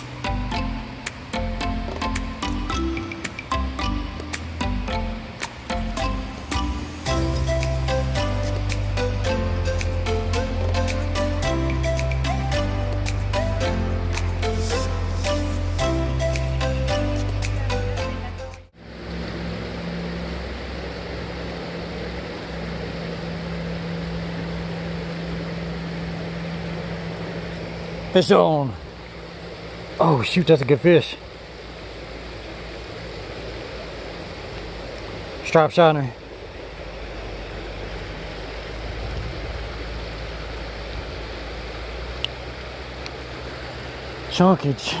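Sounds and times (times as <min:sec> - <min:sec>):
creek water rushing: 0:00.0 - 0:45.0
low steady hum: 0:00.0 - 0:45.0
unsteady low rumble: 0:00.0 - 0:45.0
wind buffeting microphone: 0:36.9 - 0:41.9.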